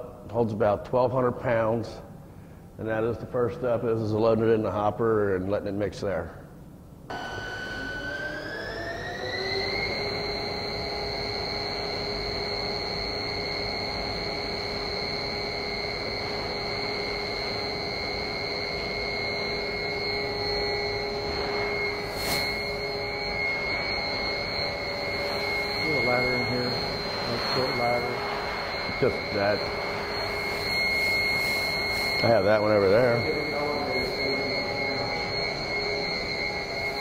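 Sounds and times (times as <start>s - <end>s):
mixer motor whining: 7.1s - 37.0s.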